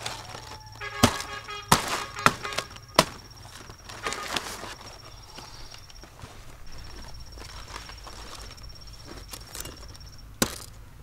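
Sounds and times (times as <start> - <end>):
sharp knocks or chops: 0.9 - 3.3.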